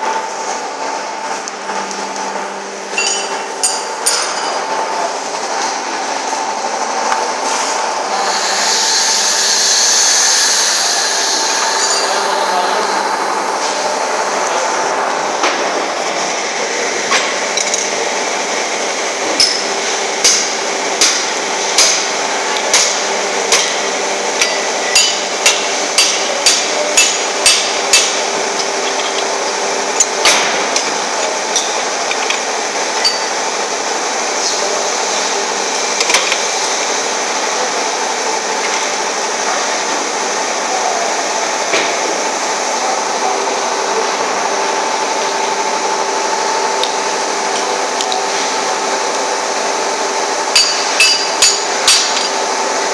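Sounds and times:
factory machinery hum: 0.0s - 52.9s
metal bar striking metal: 3.0s - 4.6s.

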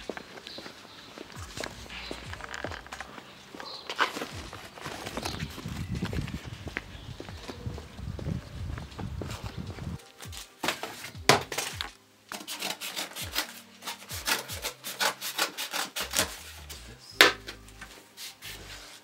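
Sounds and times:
cardboard scraping and rustling: 3.8s - 6.5s, 10.3s - 16.8s
scissors cutting cardboard: 10.4s - 17.4s.

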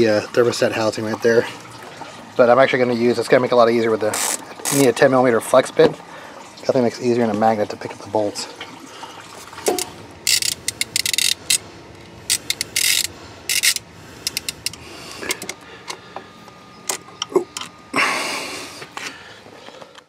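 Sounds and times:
hand ratchet clicking: 9.7s - 11.6s, 12.3s - 15.6s.

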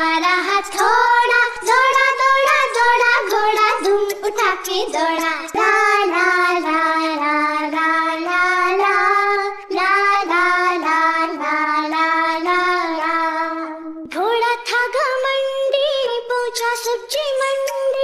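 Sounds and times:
child-like voice singing: 0.0s - 18.0s.

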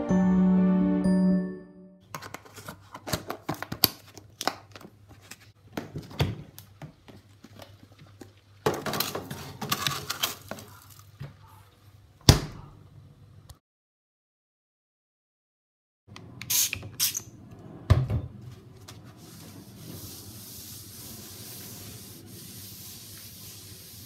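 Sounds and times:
plastic tubs and bags crinkling: 2.0s - 11.2s.

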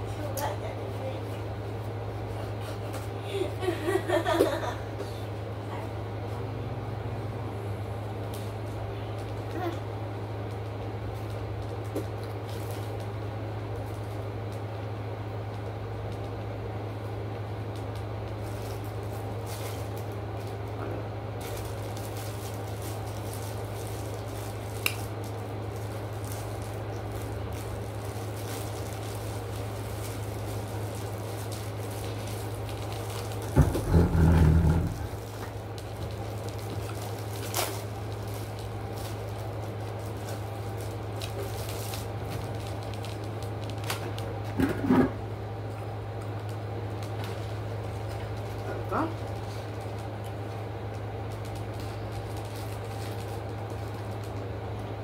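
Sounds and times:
steady low hum: 0.0s - 55.0s
plastic packaging clicks and rustles: 10.4s - 14.9s, 15.5s - 16.5s, 17.7s - 44.8s, 45.6s - 54.9s.

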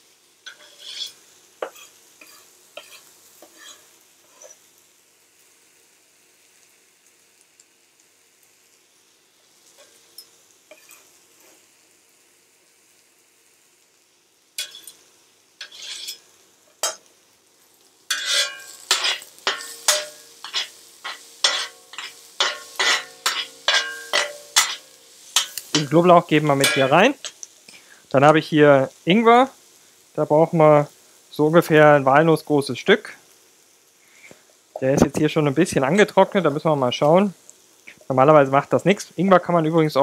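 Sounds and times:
onions sizzling in a pan: 0.0s - 40.0s
metal utensil clanking on pan: 0.4s - 4.6s, 9.8s - 11.1s, 14.6s - 15.0s, 15.6s - 17.1s, 18.1s - 27.4s.

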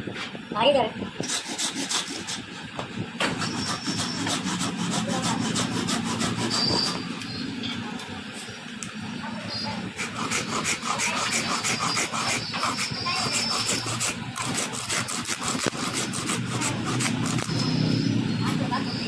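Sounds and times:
blade scraping wooden stick: 1.2s - 2.5s, 3.2s - 7.4s, 10.0s - 17.9s.

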